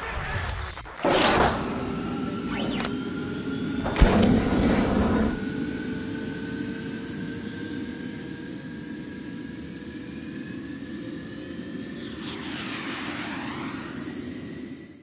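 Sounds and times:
noisy hit: 3.8s - 5.5s
slow whooshing riser: 11.4s - 15.0s.

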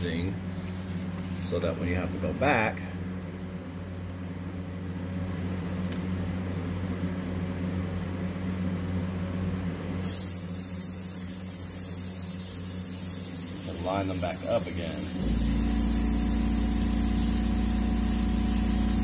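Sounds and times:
compressor humming: 0.0s - 19.0s
airbrush spraying hiss: 10.0s - 19.0s.

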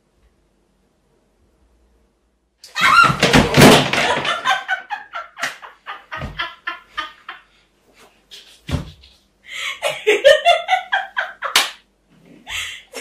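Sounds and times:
woman laughing: 4.0s - 7.4s, 9.5s - 11.6s, 12.5s - 13.0s.

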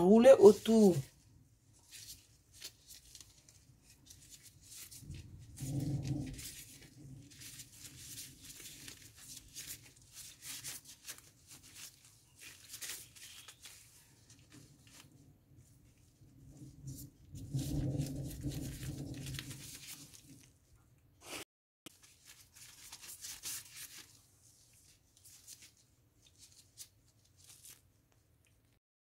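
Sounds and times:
plastic gloves crinkling: 0.0s - 20.8s, 21.9s - 28.8s.

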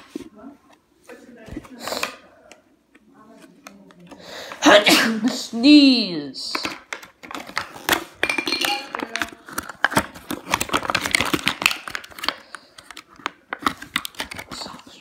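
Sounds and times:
plastic packaging crinkling: 6.7s - 15.0s.

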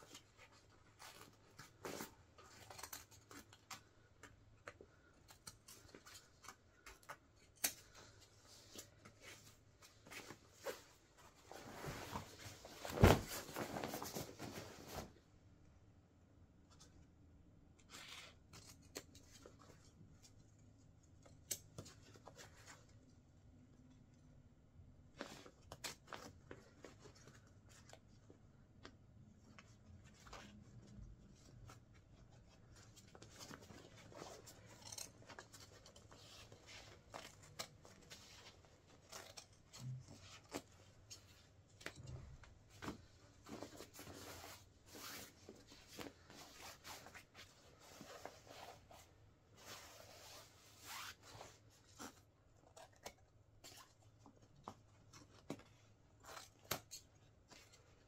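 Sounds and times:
fabric rustling: 7.8s - 15.3s, 29.5s - 52.2s.

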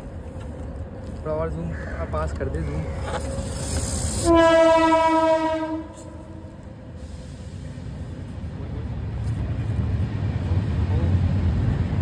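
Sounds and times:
loud horn blast: 4.2s - 6.5s.

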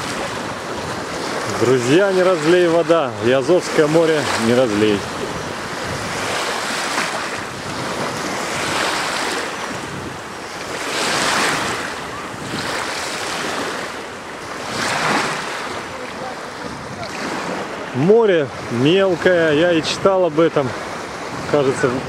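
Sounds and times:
small sea waves washing: 0.0s - 22.0s
wind buffeting microphone: 0.0s - 22.0s.

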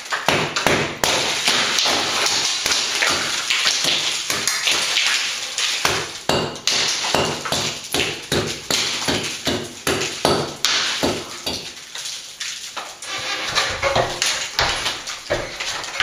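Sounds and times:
hand tool knocking on cement: 5.8s - 11.7s.

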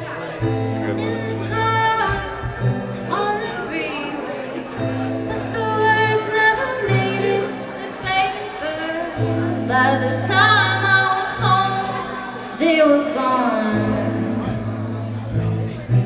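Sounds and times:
held bass notes: 9.2s - 16.0s.

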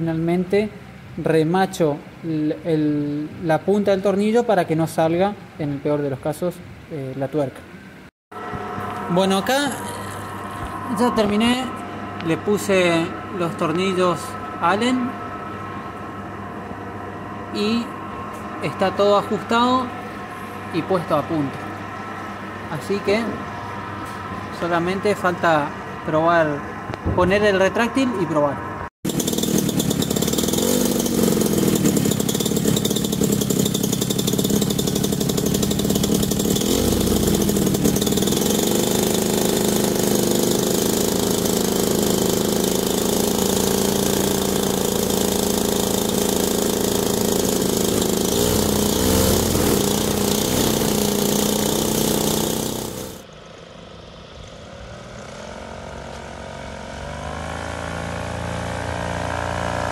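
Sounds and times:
distant paramotor engine and propeller: 8.4s - 59.9s
two-stroke engine revving: 29.1s - 53.3s, 54.9s - 59.9s.

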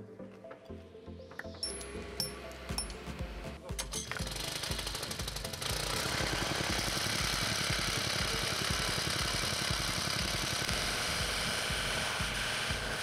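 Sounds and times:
engine throbbing: 1.9s - 13.0s
rapid knocking: 3.7s - 13.0s.

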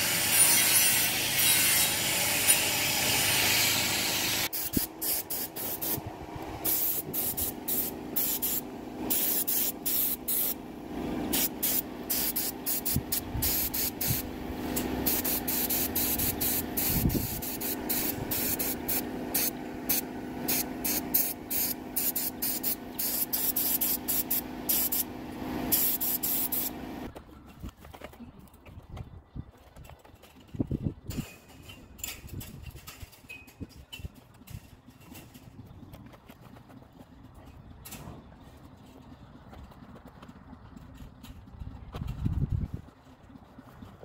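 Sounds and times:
spray paint bursts: 2.4s - 10.6s, 11.3s - 27.0s.

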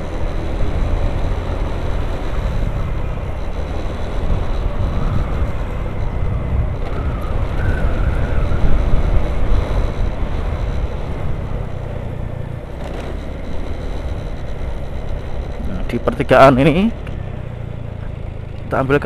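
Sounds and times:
wind on microphone: 0.0s - 12.3s
scooter riding along: 0.0s - 19.0s.

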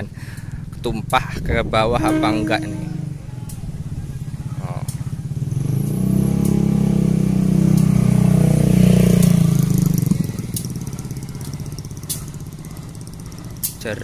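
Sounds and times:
motorcycle passing: 1.8s - 13.8s
diesel locomotive engine running: 10.2s - 14.0s.

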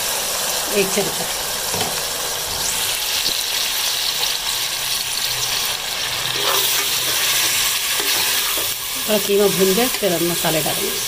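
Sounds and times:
meat and onions sizzling in oil: 0.0s - 11.0s
metal spoon scraping a pot: 6.2s - 8.8s.

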